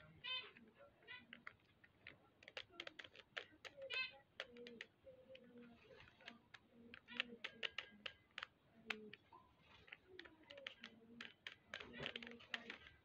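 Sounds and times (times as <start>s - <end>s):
puzzle cube plastic clicks: 0.3s - 13.0s.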